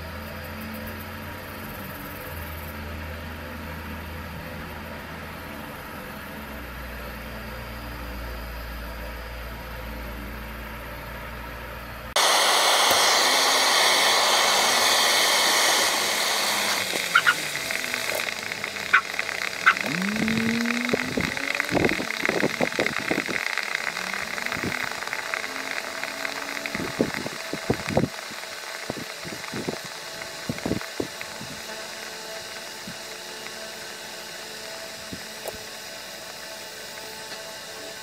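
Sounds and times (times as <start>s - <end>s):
candy sizzling with loud hiss: 12.1s - 38.0s
crackling and sharp pops: 12.8s - 32.7s
short rising squeaks: 17.0s - 22.7s.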